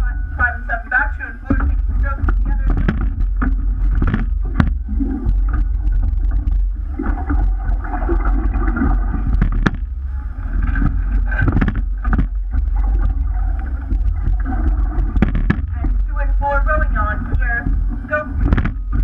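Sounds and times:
oars working in oarlocks: 0:00.0 - 0:19.0
water rushing along hull: 0:00.0 - 0:19.0
wind rumble on microphone: 0:01.4 - 0:19.0
sharp knocks: 0:01.6 - 0:05.4, 0:09.3 - 0:09.9, 0:15.0 - 0:15.9, 0:18.4 - 0:19.0.

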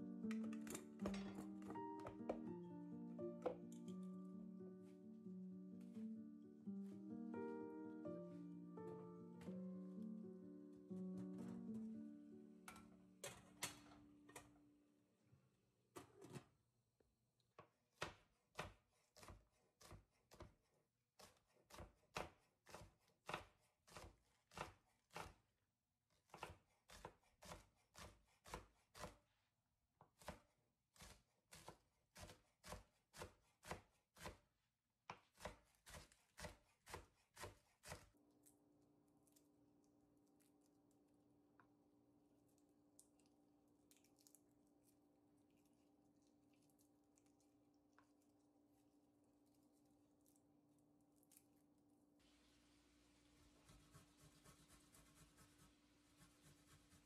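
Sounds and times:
knife chopping on wooden board: 0:21.2 - 0:25.4, 0:26.3 - 0:29.2, 0:35.1 - 0:38.1.

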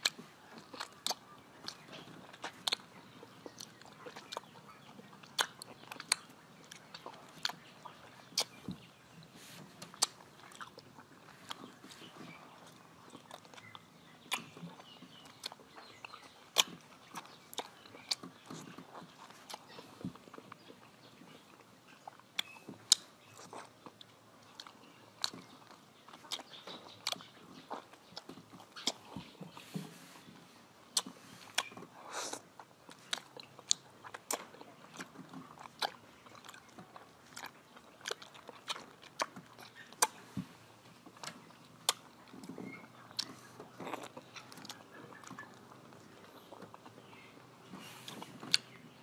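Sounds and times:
crunchy chewing of mango: 0:00.0 - 0:49.0
mouth clicks: 0:05.2 - 0:08.9, 0:30.9 - 0:40.2, 0:41.2 - 0:49.0.

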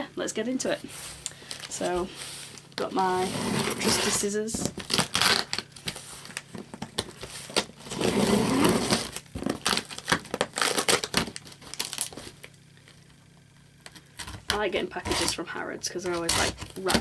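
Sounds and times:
tape tearing: 0:01.2 - 0:12.5, 0:13.8 - 0:15.4, 0:16.0 - 0:17.0
scissors snipping packing tape: 0:16.0 - 0:17.0.

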